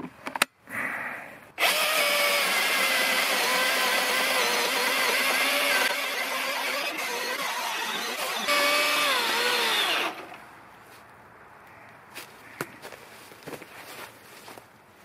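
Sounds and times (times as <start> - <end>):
electric chainsaw cutting log: 1.6 - 10.4.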